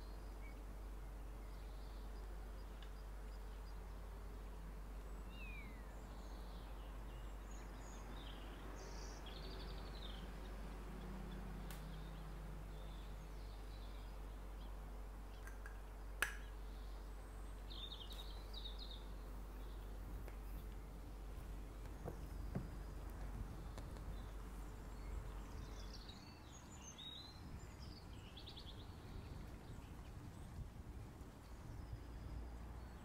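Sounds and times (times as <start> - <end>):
faint bird chirps: 0.0 - 10.3.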